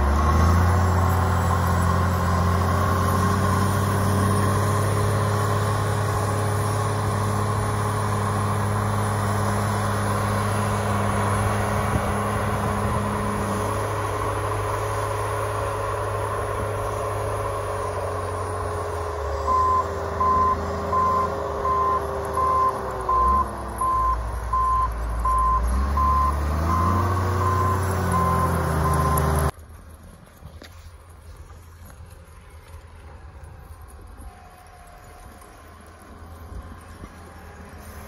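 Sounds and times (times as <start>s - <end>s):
diesel engine running: 0.0s - 38.0s
backup alarm beeping: 19.5s - 29.4s.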